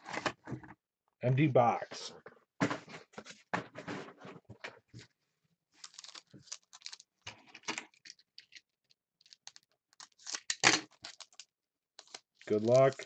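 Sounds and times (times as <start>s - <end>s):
foil packs crinkling: 5.8s - 8.2s, 9.2s - 11.4s, 12.0s - 13.0s.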